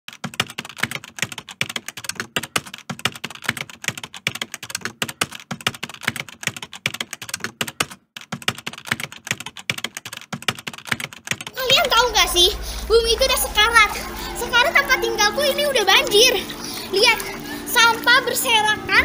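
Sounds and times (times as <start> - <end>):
keyboard typing: 0.1 - 12.1.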